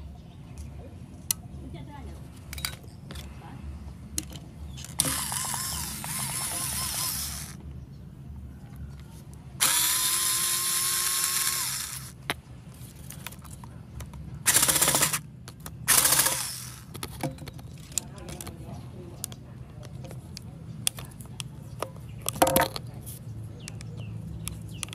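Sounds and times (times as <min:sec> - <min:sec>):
cordless drill whining: 0:04.9 - 0:07.6, 0:09.6 - 0:12.2, 0:14.5 - 0:15.2, 0:15.9 - 0:16.9.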